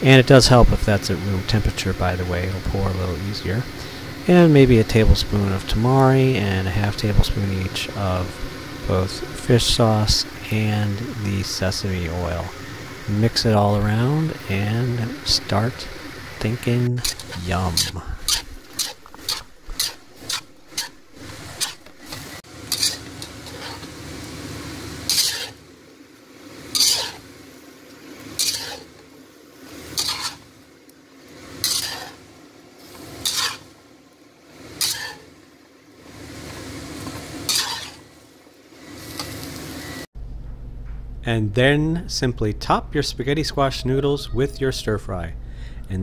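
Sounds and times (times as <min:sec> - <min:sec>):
food sizzling: 0:00.0 - 0:40.1
metal spatula scraping wok: 0:03.6 - 0:24.0, 0:25.0 - 0:25.7, 0:26.5 - 0:27.4, 0:28.2 - 0:29.0, 0:29.7 - 0:30.6, 0:31.3 - 0:33.8, 0:34.6 - 0:35.4, 0:37.0 - 0:38.2.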